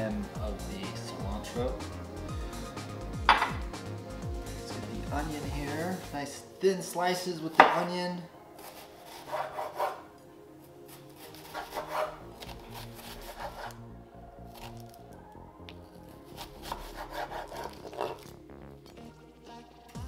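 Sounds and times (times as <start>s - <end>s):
background music: 0.0s - 20.0s
knife slicing onion on wooden board: 8.6s - 10.0s, 11.0s - 13.8s, 16.4s - 18.3s.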